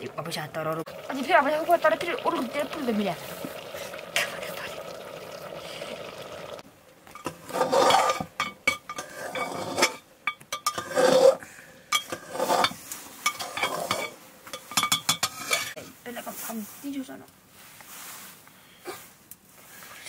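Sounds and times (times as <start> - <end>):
metal spoon scraping pot: 7.2 - 15.8.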